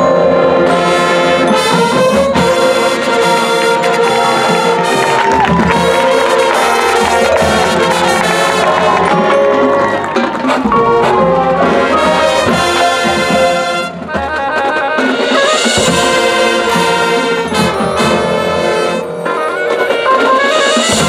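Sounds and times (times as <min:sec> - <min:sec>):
band percussion: 0:00.0 - 0:21.0
brass section: 0:00.0 - 0:21.0
marching band playing: 0:00.0 - 0:21.0.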